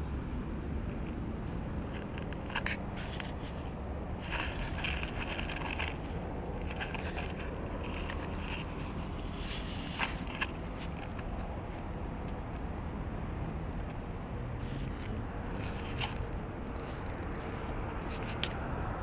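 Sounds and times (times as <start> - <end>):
wind rumbling on microphone: 0.0 - 19.0
camera handling scuffs and clicks: 1.9 - 12.6, 14.6 - 18.6.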